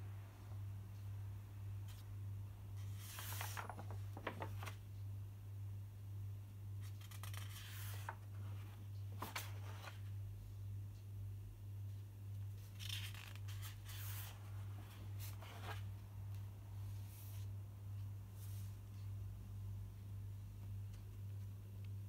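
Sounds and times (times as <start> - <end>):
paper sheets rustling: 2.8 - 4.8, 6.8 - 10.0, 12.6 - 15.9.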